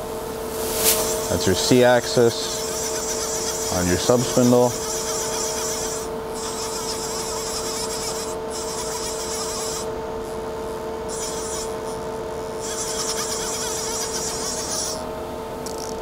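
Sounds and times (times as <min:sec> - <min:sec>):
high hiss: 0:00.4 - 0:02.7.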